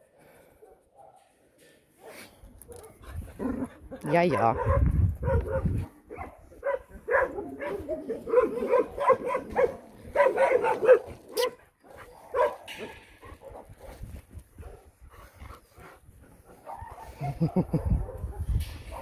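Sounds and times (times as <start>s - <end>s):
dogs barking: 4.0s - 13.7s.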